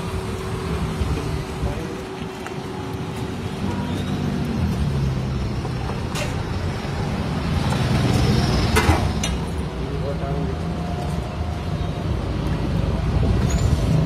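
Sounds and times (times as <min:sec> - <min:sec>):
street traffic rumble: 0:00.0 - 0:14.0.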